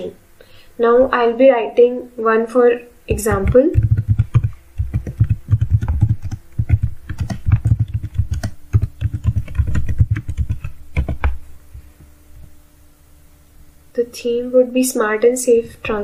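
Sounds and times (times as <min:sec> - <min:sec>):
computer keyboard typing: 0:03.1 - 0:11.4.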